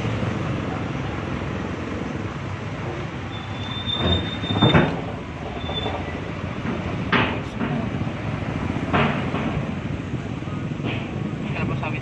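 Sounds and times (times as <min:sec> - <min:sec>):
car road noise rumbling: 0:00.0 - 0:12.0
thin high squeal: 0:03.2 - 0:04.9.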